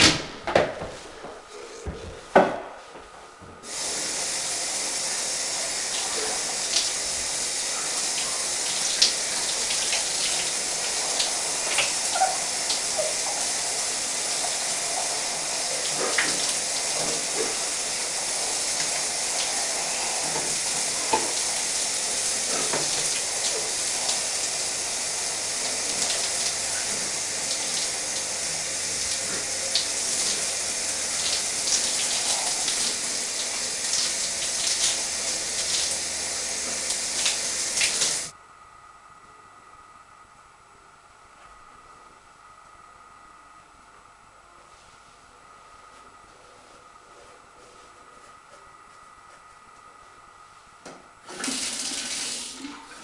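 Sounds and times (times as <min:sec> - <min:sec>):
shower spray hissing: 0:03.6 - 0:38.3, 0:51.3 - 0:53.0.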